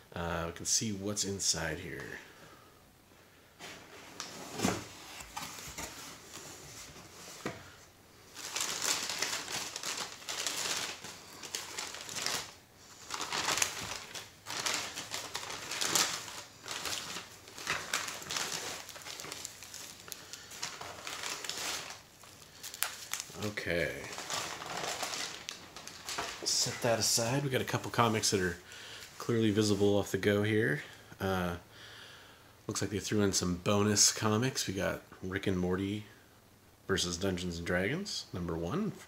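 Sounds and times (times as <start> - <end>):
tissue paper rustling: 8.3 - 29.9.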